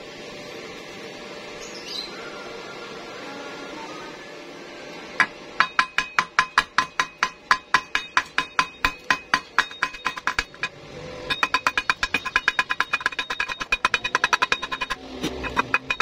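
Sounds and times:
chipping hammer tapping on metal: 0:05.2 - 0:16.0.

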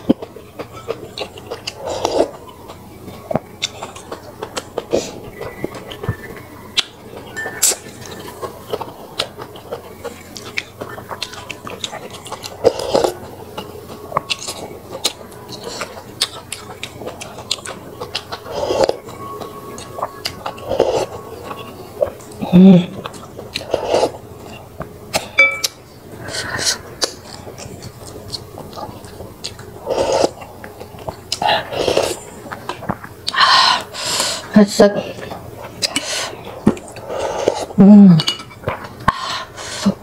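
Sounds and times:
chewing: 0:00.0 - 0:40.0
utensils tapping glass bowl: 0:25.4 - 0:25.8
slurping: 0:26.2 - 0:34.5, 0:35.1 - 0:37.8.

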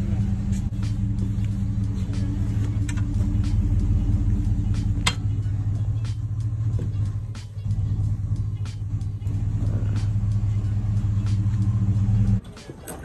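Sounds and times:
pickup truck engine idling: 0:00.0 - 0:13.0.

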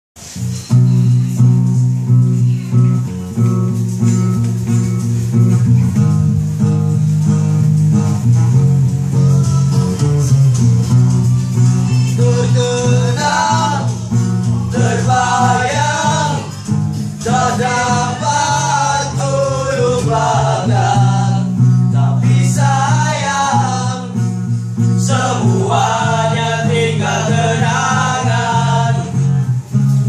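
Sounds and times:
acoustic guitar: 0:00.2 - 0:30.0
men singing together: 0:11.9 - 0:29.5.

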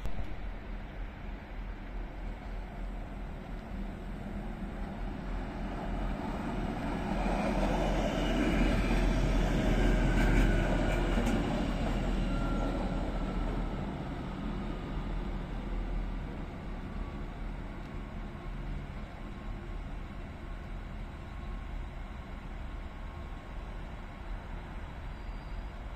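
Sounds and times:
diesel train passing: 0:00.0 - 0:25.9
faint high wheel squeals: 0:09.7 - 0:13.8, 0:25.0 - 0:25.9.

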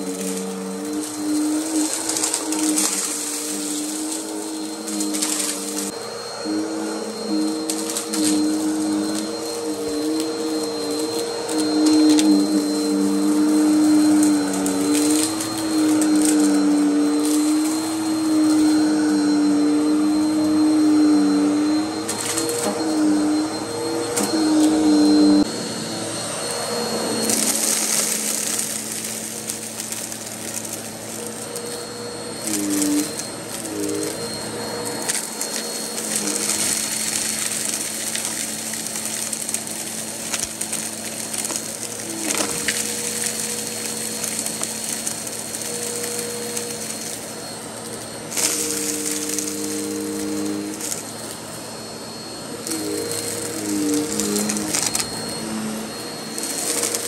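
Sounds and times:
grit crackling up nozzle: 0:00.0 - 0:06.0, 0:07.1 - 0:19.1, 0:27.0 - 0:47.3, 0:52.6 - 0:55.2
vacuum cleaner motor hum: 0:00.0 - 0:57.0.

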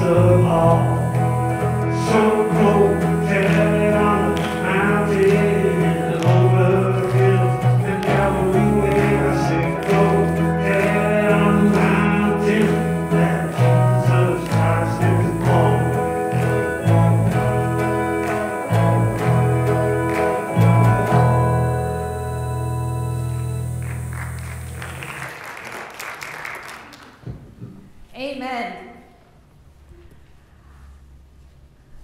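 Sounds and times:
person singing: 0:00.0 - 0:23.1
gospel band playing: 0:00.0 - 0:25.9.

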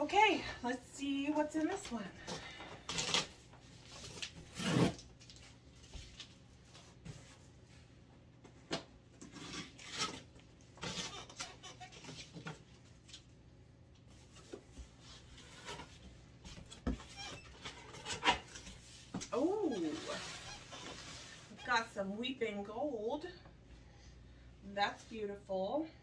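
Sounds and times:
packing tape ripping: 0:02.9 - 0:05.4.

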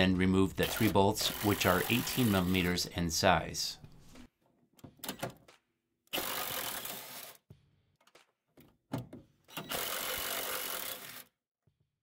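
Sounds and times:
impact drill bursts: 0:06.1 - 0:07.4, 0:09.5 - 0:11.3.

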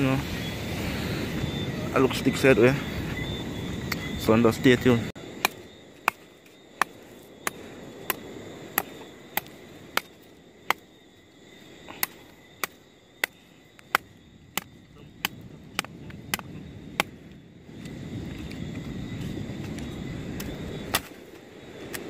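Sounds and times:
machete chopping dry stick: 0:05.4 - 0:08.2, 0:11.9 - 0:17.2, 0:20.9 - 0:21.2.

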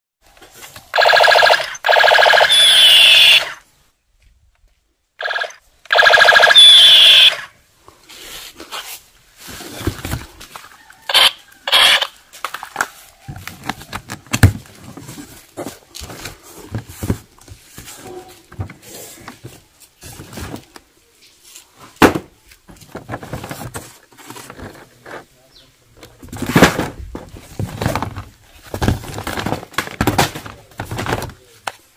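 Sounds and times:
toy machine gun sound effect: 0:01.0 - 0:03.6, 0:05.2 - 0:07.5, 0:11.1 - 0:12.1
cardboard box handling rustles: 0:08.4 - 0:10.9, 0:12.8 - 0:20.9.

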